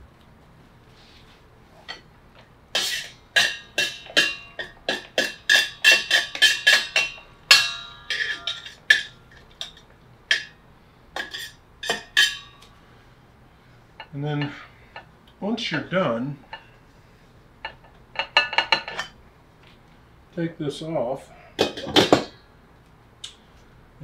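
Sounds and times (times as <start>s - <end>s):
metal utensil clinking on steel: 2.8s - 10.5s.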